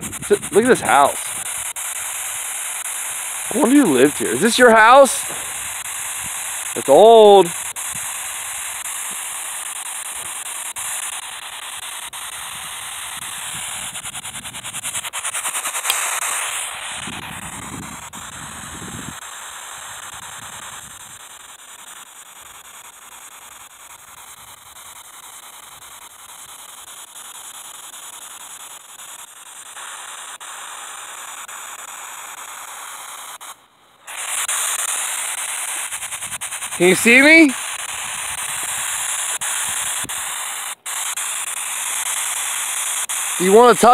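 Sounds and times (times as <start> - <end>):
radio static hiss: 0.0 - 17.9, 32.4 - 43.9.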